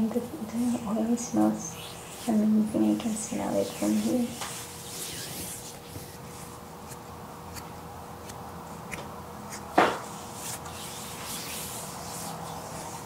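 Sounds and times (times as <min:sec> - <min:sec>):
hands massaging oiled skin: 0:01.6 - 0:06.5, 0:10.2 - 0:13.0.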